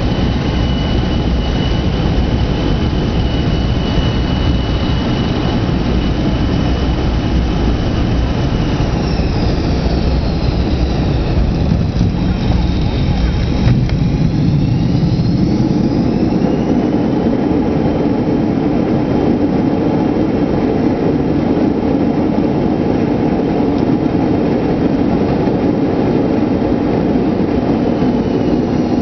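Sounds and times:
faint rising whine: 0.0s - 29.0s
jet engines and wheels rumbling: 0.0s - 29.0s.

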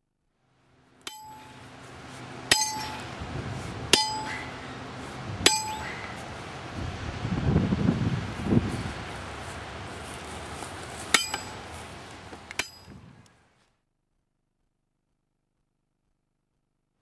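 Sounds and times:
hammer clanging on metal stake: 1.0s - 1.6s, 2.5s - 3.2s, 3.9s - 4.6s, 5.4s - 6.2s, 11.1s - 11.6s, 12.5s - 13.0s.

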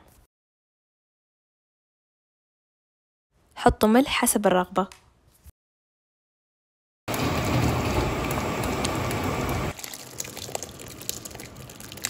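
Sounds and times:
thick sauce bubbling in a pan: 7.9s - 12.0s
sauce slopping into a metal pot: 9.8s - 12.0s.

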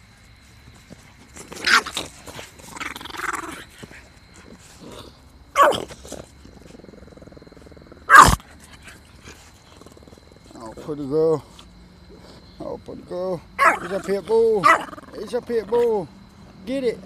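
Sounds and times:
dog vocalizing: 13.6s - 15.1s.

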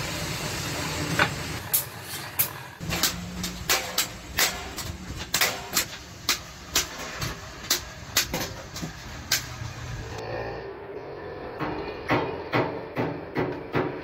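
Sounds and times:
hammer striking metal: 1.6s - 9.5s, 11.6s - 14.0s.

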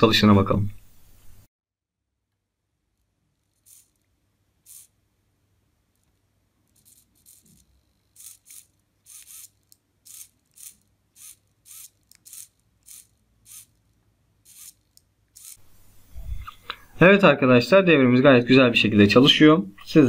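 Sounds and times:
servo motor whirring: 3.3s - 5.0s, 5.9s - 16.4s.

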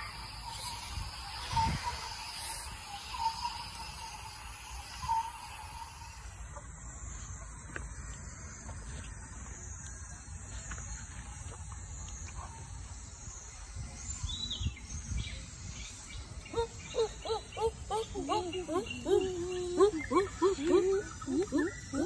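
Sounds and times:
insects chirring in grass: 0.0s - 22.0s
voice-like calls: 16.5s - 22.0s.

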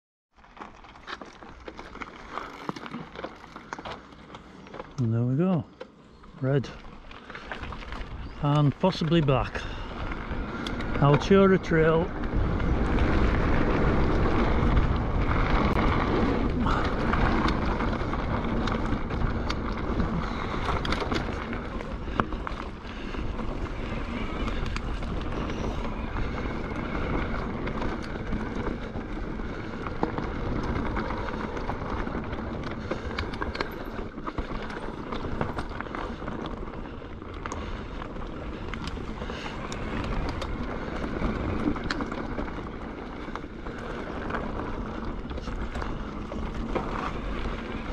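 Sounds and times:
bike knocking and rattling: 0.4s - 47.9s
tyres crunching over gravel: 0.4s - 47.9s
wind noise on microphone: 9.5s - 47.9s.

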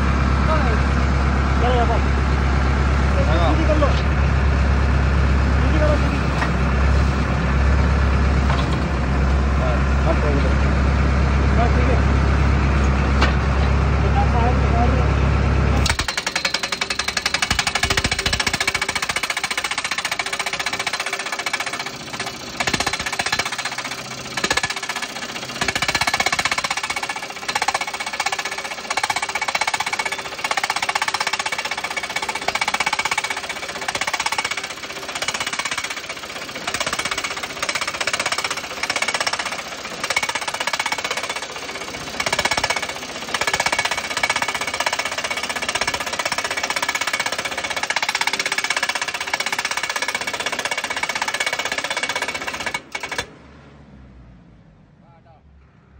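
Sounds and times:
hydraulic post driver hammering: 15.8s - 53.3s.

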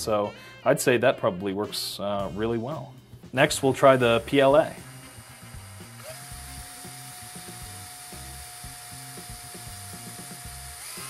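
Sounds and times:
background music with beat: 0.0s - 11.0s
power drill whine: 3.8s - 11.0s.

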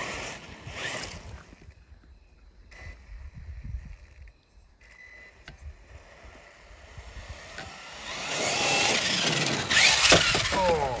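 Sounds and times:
electric motor whining: 4.8s - 11.0s
tyres crunching gravel: 8.1s - 11.0s.

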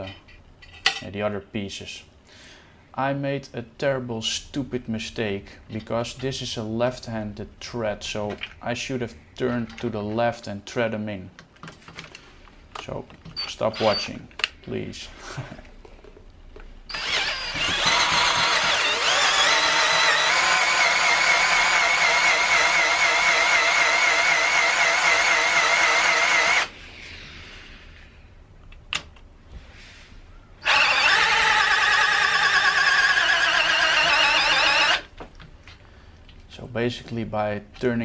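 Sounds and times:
power drill high squeal: 13.4s - 14.2s, 16.9s - 26.7s, 30.6s - 35.1s.

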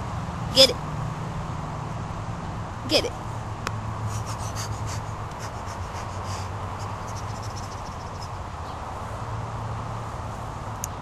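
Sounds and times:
low background hum: 0.0s - 8.8s.

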